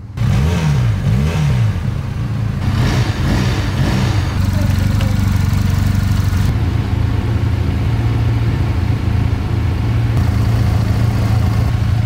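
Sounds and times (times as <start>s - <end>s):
motorcycle engine idling: 3.3s - 12.0s.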